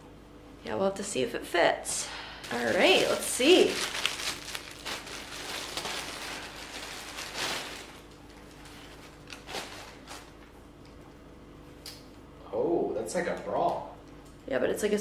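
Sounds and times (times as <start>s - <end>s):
packaging and fabric rustling: 2.4s - 10.4s.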